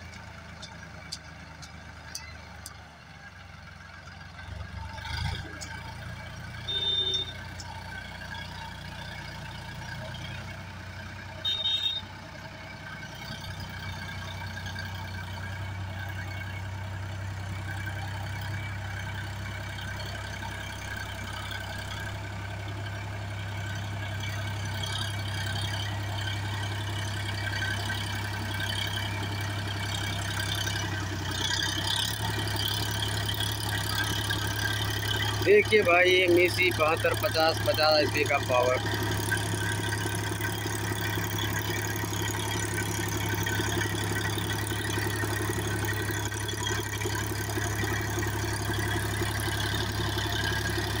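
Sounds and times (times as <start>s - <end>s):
tractor diesel engine under load: 0.0s - 51.0s
short high beep: 6.6s - 7.4s.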